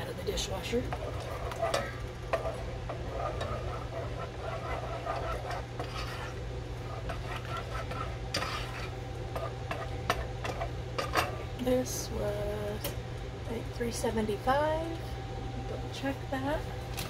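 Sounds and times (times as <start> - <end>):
steady low hum: 0.0 - 17.0
spoon scraping saucepan: 0.4 - 11.5.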